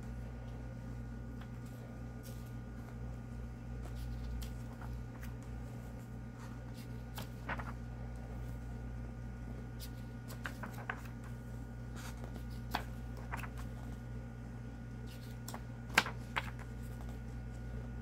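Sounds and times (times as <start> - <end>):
steady low hum: 0.0 - 18.0
pages turning: 1.3 - 3.1, 3.8 - 8.7, 9.8 - 14.1, 15.0 - 17.7.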